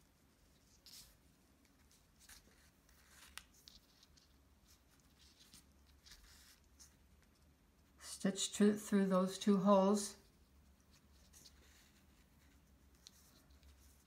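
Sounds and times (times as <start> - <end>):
thread drawn through leather: 0.6 - 7.0.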